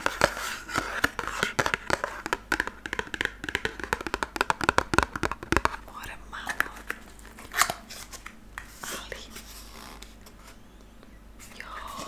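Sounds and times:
fingers tapping cardboard box: 0.2 - 5.8.

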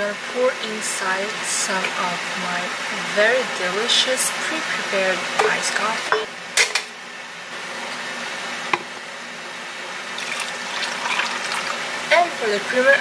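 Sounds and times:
coffee pouring into plastic cup: 10.0 - 11.8.

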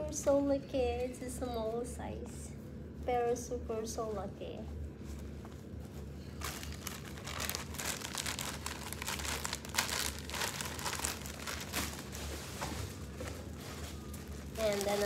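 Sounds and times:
plastic bag crinkling: 6.3 - 15.0.

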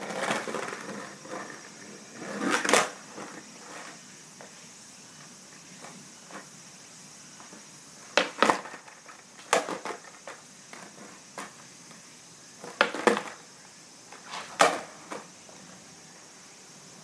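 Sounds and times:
skateboard clacking on concrete: 0.0 - 4.6, 7.4 - 12.0, 12.6 - 13.5, 14.1 - 15.6.

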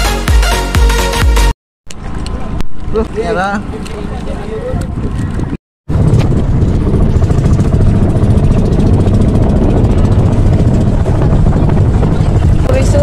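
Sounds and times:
boat engine chugging: 3.0 - 13.0
water rushing along hull: 6.4 - 13.0.

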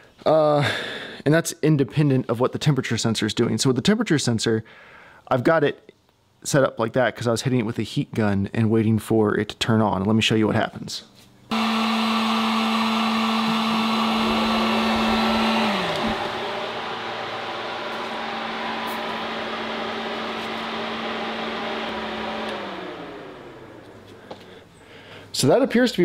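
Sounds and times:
heat gun whirring: 11.5 - 24.7
radiator fan blowing air: 11.5 - 25.4.

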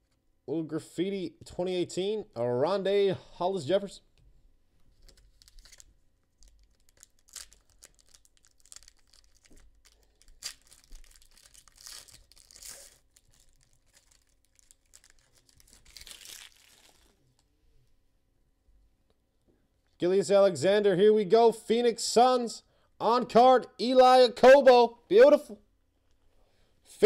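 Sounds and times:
foil wrapper tearing and crinkling: 5.0 - 17.4.

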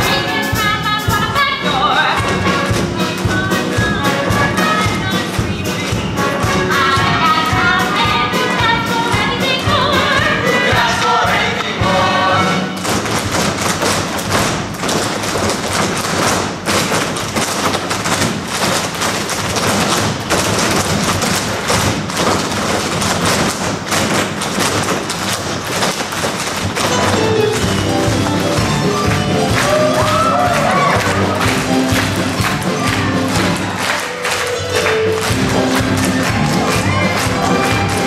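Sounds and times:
band music: 0.0 - 14.6, 26.7 - 38.0
tap dancing on stage: 0.0 - 38.0.

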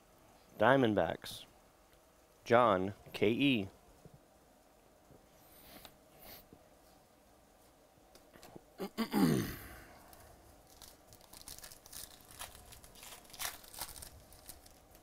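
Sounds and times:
person sighing: 8.8 - 10.2
foil pack tearing and crinkling: 10.1 - 15.0.

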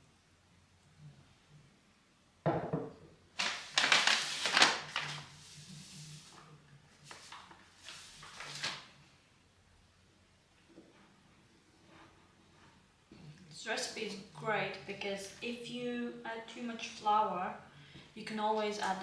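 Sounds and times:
knock on bowl: 2.4 - 3.0.

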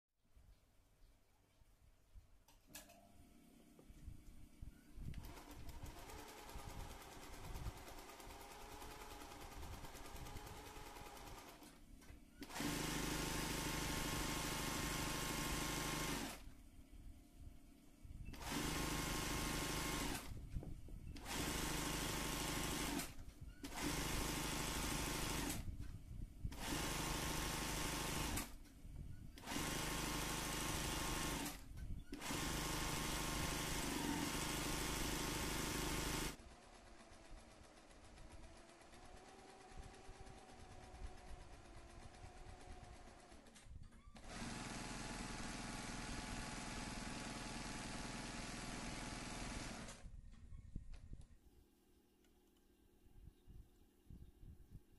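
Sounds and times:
sewing machine stitching: 5.1 - 11.8, 12.4 - 16.5, 18.3 - 20.4, 21.2 - 25.7, 26.5 - 28.6, 29.4 - 50.1.

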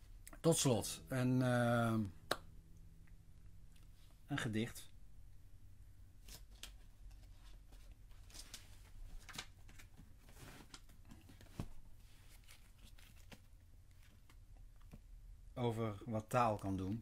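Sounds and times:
paper rustling: 6.2 - 14.4.

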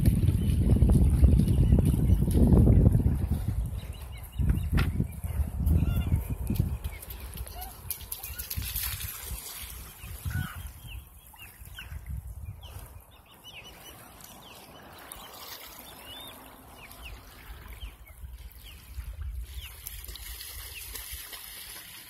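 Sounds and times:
wind rumble on microphone: 0.0 - 21.7
seawater sloshing and trickling: 6.9 - 22.0.

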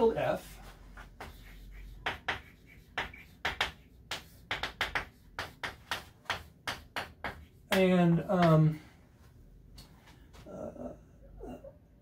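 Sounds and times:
chalk on blackboard: 0.0 - 8.5.

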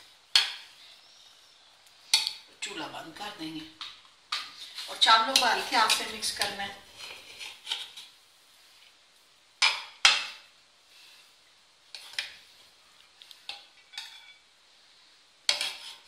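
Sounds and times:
metal spoon scraping metal pot: 13.5 - 14.4, 15.5 - 16.0.

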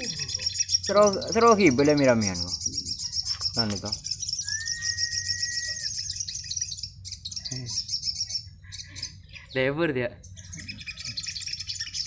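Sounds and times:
sunbirds chirping and trilling: 0.0 - 12.0
long steady whistle: 4.4 - 6.0.

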